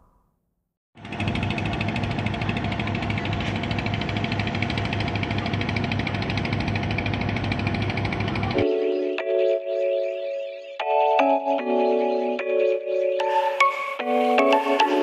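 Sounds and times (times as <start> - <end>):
boat diesel engine chugging: 1.0 - 8.6.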